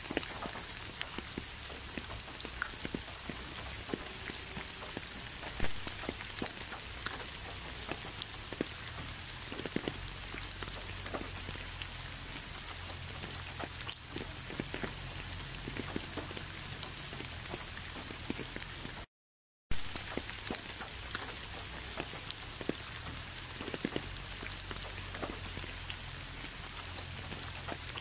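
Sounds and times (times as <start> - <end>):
steady rain falling: 0.0 - 19.1, 19.7 - 28.0.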